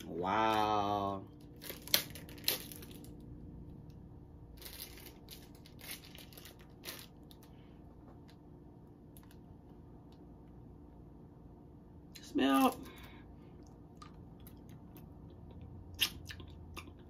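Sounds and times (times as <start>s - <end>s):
plastic candy wrapper crinkling: 0.5s - 3.3s, 4.5s - 7.5s.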